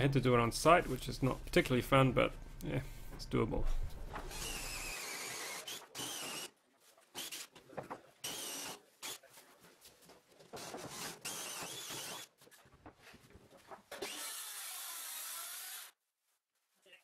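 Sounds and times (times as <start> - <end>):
cordless drill boring into wood: 4.3 - 6.5, 7.2 - 7.5, 8.2 - 9.2, 10.6 - 12.3, 14.0 - 16.0.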